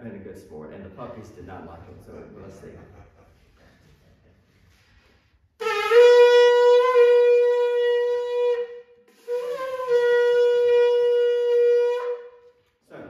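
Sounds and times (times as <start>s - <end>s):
shofar blasts: 5.6s - 12.7s.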